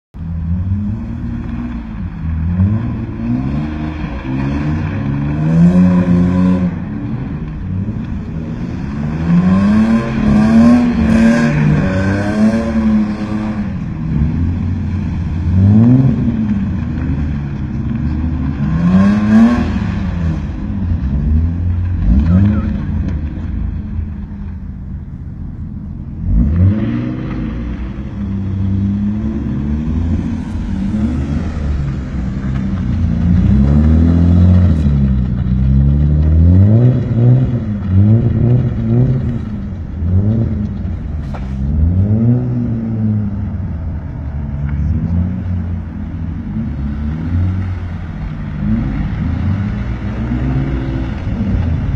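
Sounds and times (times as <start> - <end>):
car engine revving: 0.2 - 51.9.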